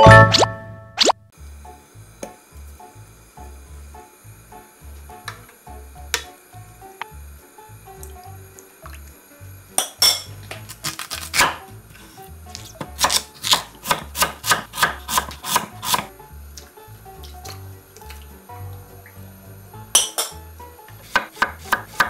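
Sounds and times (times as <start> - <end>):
knife chopping on wooden board: 10.5 - 11.6, 12.8 - 16.1, 20.9 - 22.0
background music with steady beat: 11.3 - 22.0.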